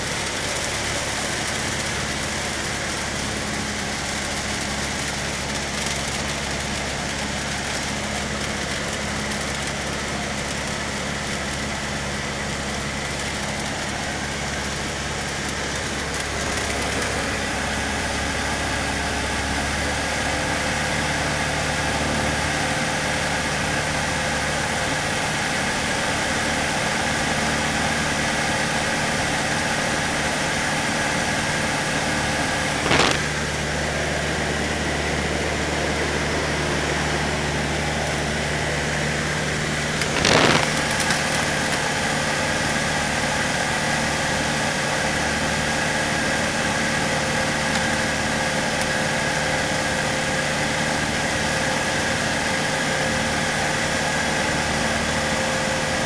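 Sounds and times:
airplane engine and propeller droning: 0:00.0 - 0:56.0
brief bursts of noise: 0:32.8 - 0:33.4, 0:40.0 - 0:41.2.

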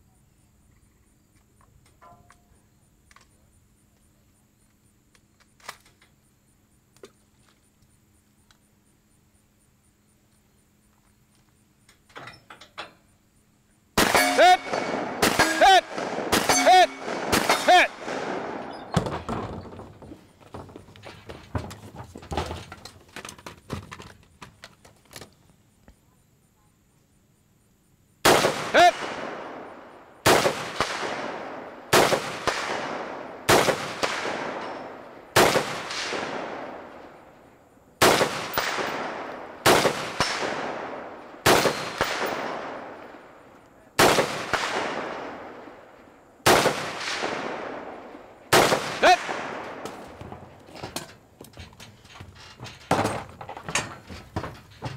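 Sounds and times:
rifle shots with echo: 0:14.0 - 0:19.0, 0:28.2 - 0:37.3, 0:38.0 - 0:50.2
gear clattering: 0:50.3 - 0:54.9.

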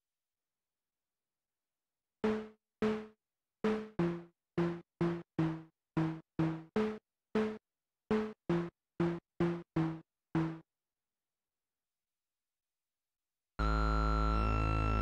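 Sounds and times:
plucked synthesizer notes: 0:03.7 - 0:10.6.

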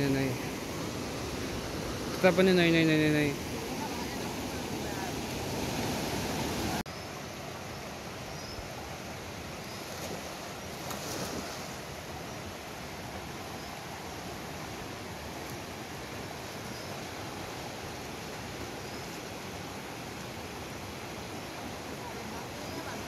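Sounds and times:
river rapids rushing over boulders: 0:00.0 - 0:06.8.

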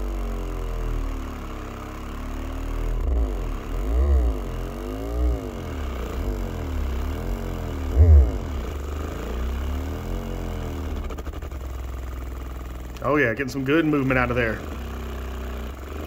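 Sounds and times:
subwoofer bass sweeping in pitch: 0:00.0 - 0:16.0.

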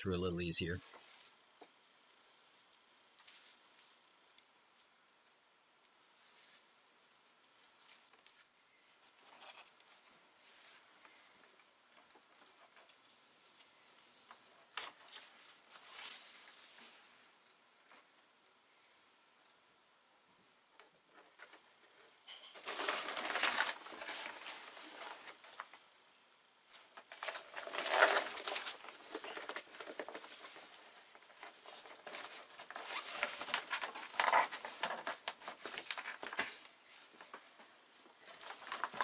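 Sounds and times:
sail cloth rustling and crinkling: 0:00.8 - 0:04.2, 0:12.1 - 0:17.2, 0:22.5 - 0:25.9, 0:26.8 - 0:39.0.

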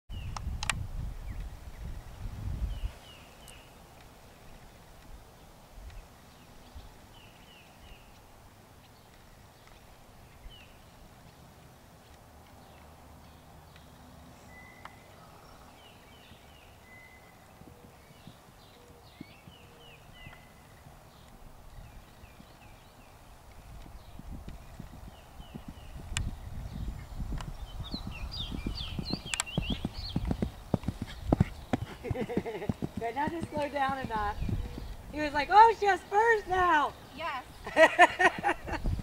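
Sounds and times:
birds chirping: 0:01.2 - 0:39.0
horse hoofbeats on sand: 0:17.6 - 0:22.9, 0:23.5 - 0:35.8.

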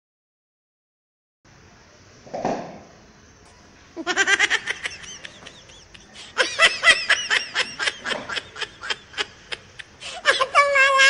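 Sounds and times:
high-pitched laughter: 0:04.0 - 0:11.0.

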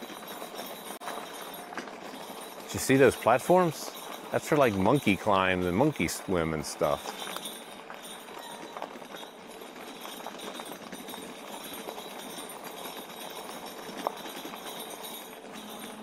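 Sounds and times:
small rattles and clicks: 0:00.0 - 0:16.0
tyres rolling on rough trail: 0:00.0 - 0:16.0.

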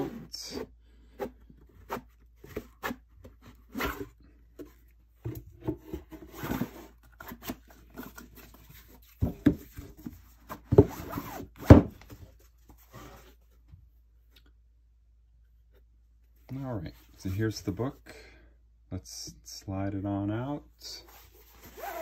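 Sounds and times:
book rubbing and scraping: 0:21.1 - 0:22.0.

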